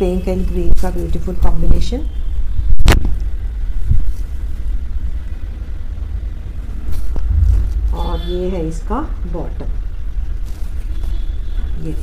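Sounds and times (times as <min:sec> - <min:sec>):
steady low rumble: 0:06.5 - 0:10.2.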